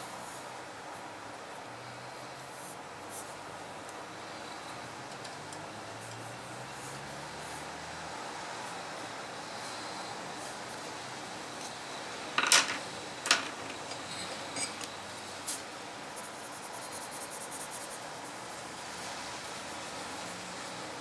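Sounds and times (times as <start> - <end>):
steady background hiss: 0.0 - 21.0
pencils knocking and clicking: 12.4 - 14.0
pencil scratching on paper: 16.2 - 18.4.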